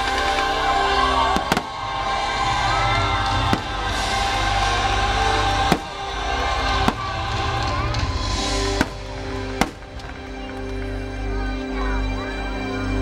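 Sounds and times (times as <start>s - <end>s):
music over loudspeakers: 0.0s - 13.0s
firework bangs: 1.3s - 10.3s.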